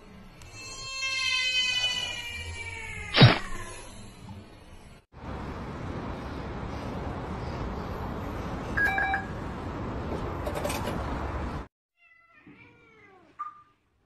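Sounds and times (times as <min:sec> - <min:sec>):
steady outdoor noise: 0:04.3 - 0:11.7.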